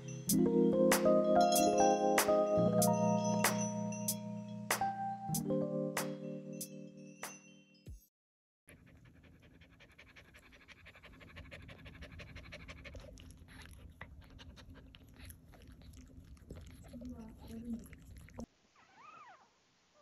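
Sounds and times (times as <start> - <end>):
dog panting fast: 8.7 - 18.5.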